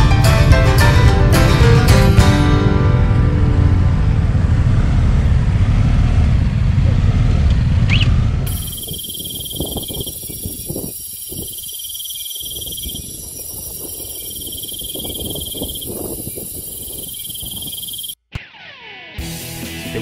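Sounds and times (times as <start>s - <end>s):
insects trilling: 8.5s - 18.2s.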